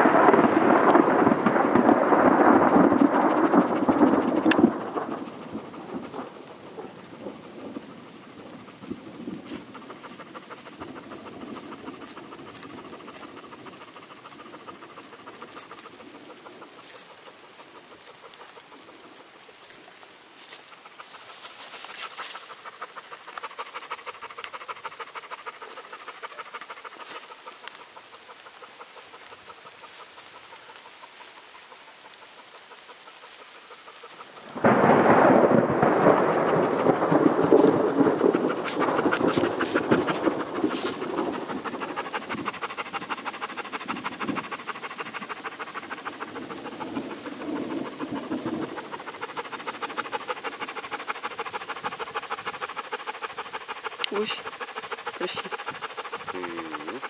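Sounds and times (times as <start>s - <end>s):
dog panting: 0.0s - 57.0s.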